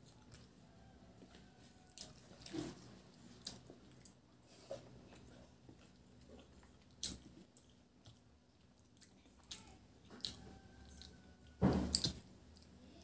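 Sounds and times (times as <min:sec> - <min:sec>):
soft chewing: 0:00.0 - 0:13.0.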